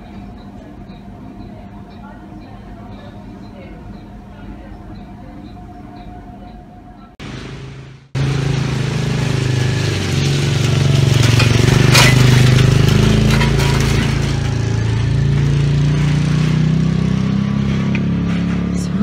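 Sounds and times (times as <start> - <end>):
vehicle engine running: 7.2 - 19.0.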